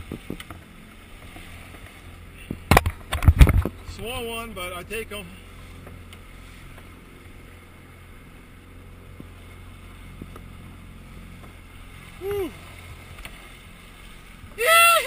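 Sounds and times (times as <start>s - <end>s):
outboard motor humming: 0.0s - 15.0s
water and wind noise: 0.0s - 15.0s
short voiced hum: 12.2s - 12.6s.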